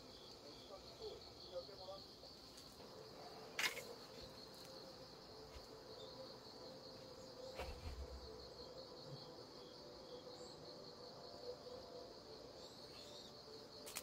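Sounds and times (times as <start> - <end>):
insects chirring: 0.0 - 14.0
soft thump with rustling: 7.5 - 8.2.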